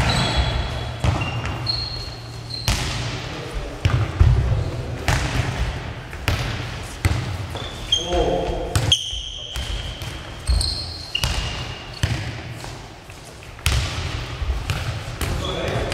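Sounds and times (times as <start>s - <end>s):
short high squeaks: 0.0s - 2.7s, 8.9s - 12.0s.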